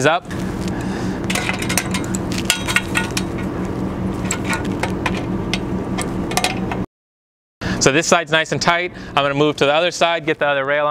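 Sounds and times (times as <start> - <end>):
low hum: 0.0 - 6.9.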